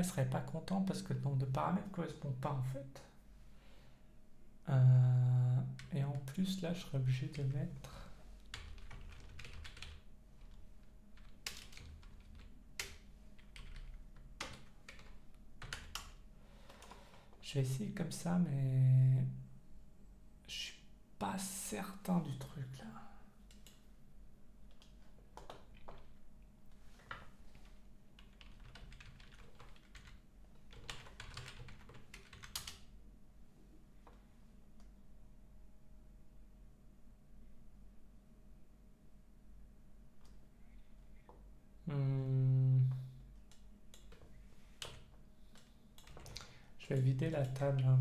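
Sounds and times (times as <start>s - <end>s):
faint low hum: 0.0s - 48.0s
computer keyboard typing: 8.5s - 17.1s, 24.7s - 26.2s, 28.2s - 32.9s, 43.5s - 47.9s.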